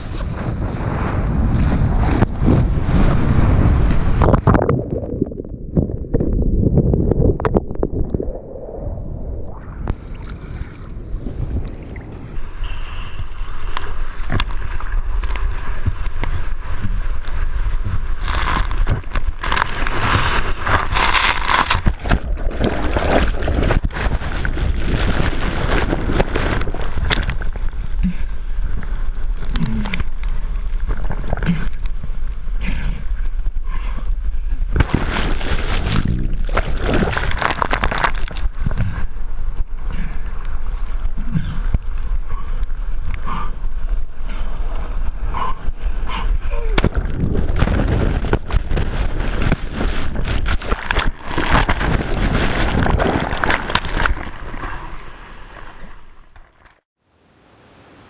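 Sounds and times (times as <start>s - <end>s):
wind buffeting microphone: 0.0s - 28.9s, 38.4s - 55.6s
low ocean rumble: 0.0s - 56.9s.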